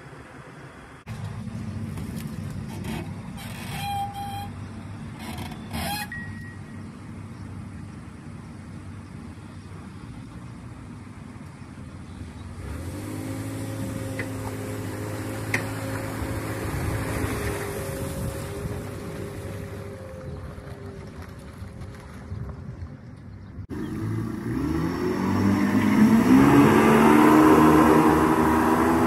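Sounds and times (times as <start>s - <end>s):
boat engine drone: 0.0s - 29.0s
hull scraping: 1.1s - 6.3s
brief squeal: 3.4s - 4.6s, 5.2s - 6.8s.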